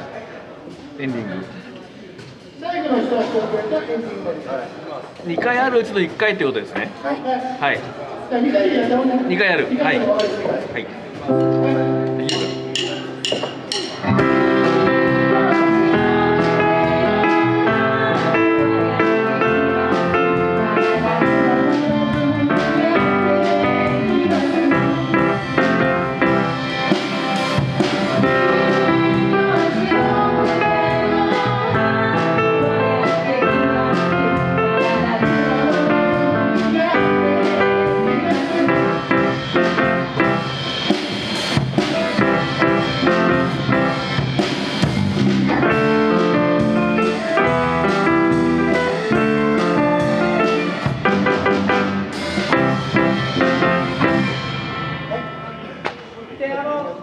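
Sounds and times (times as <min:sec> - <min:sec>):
live band playing: 0:05.4 - 0:56.4
woman singing into microphone: 0:14.6 - 0:25.6, 0:28.6 - 0:39.3.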